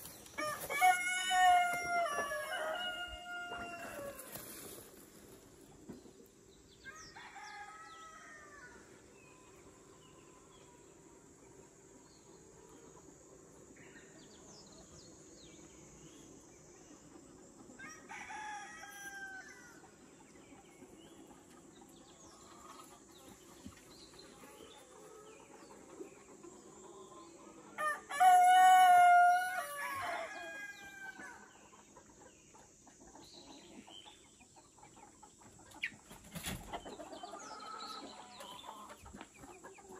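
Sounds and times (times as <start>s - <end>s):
roosters crowing: 0.3s - 4.7s, 6.8s - 8.9s, 17.4s - 20.0s, 27.1s - 31.7s.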